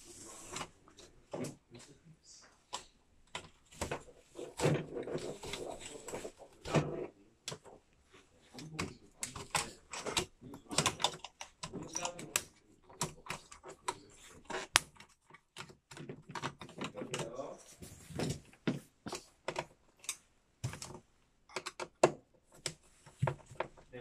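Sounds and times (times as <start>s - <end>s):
plastic clips clicking and snapping: 8.6s - 17.3s, 19.1s - 22.8s.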